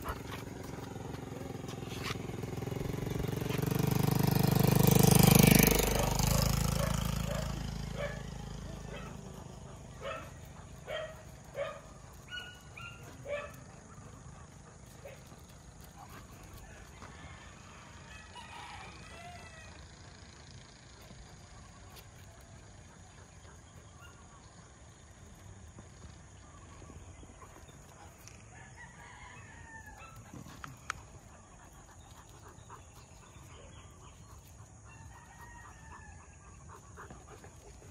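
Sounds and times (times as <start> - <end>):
dog barking: 5.9 - 14.1
faint rooster crowing: 16.6 - 19.9, 28.5 - 30.3, 34.9 - 36.5.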